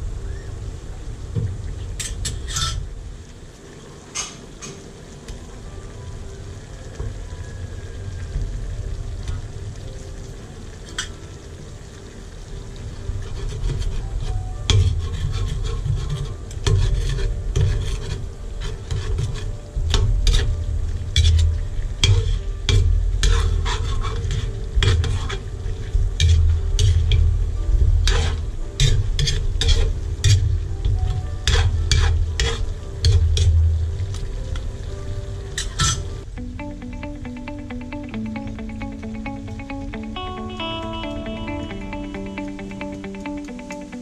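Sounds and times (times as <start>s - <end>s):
chicken sizzling in a wok: 0.0s - 36.3s
metal spatula scraping a wok: 13.2s - 20.6s, 21.2s - 27.2s, 28.0s - 30.5s, 31.4s - 33.6s.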